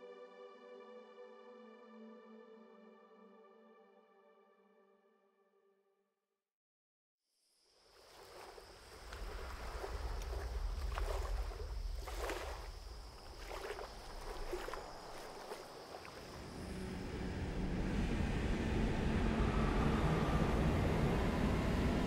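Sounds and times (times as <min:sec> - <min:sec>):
water lapping against a dock: 0:08.0 - 0:16.4
low wind rumble: 0:08.8 - 0:22.0
distant car engine: 0:16.5 - 0:22.0.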